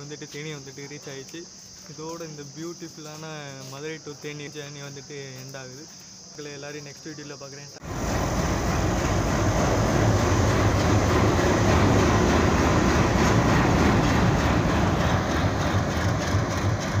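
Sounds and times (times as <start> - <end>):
diesel locomotive engine drone: 7.8 - 17.0.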